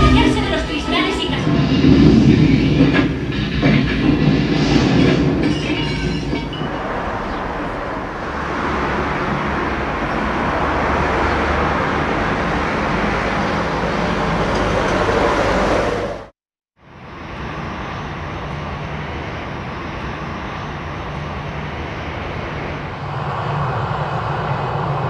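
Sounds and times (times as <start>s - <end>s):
vehicle rumbling and rattling: 0.0s - 16.3s.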